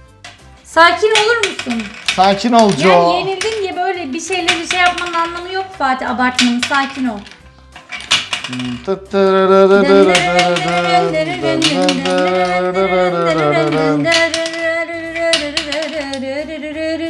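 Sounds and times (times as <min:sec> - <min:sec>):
person humming a tune: 0:08.5 - 0:17.0.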